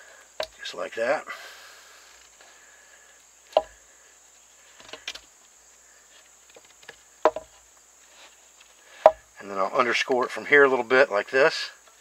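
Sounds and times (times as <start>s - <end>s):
knife cutting wood: 3.5s - 3.8s.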